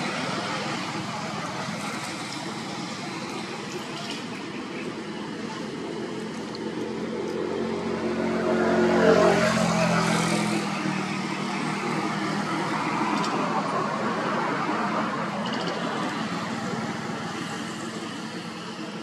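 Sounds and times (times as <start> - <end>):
steady background noise: 0.0 - 19.0
vehicle engine passing: 5.3 - 18.2.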